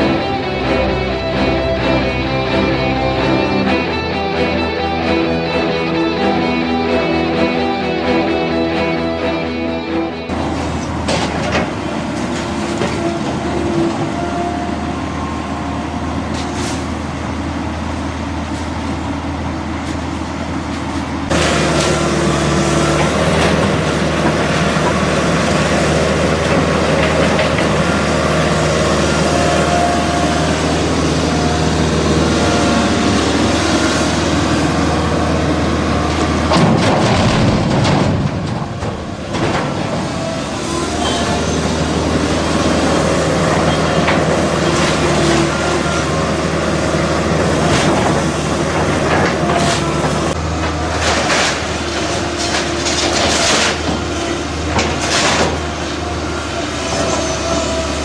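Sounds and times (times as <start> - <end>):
excavator diesel engine running: 0.0 - 58.0
demolition debris noise: 10.3 - 14.0, 20.7 - 58.0.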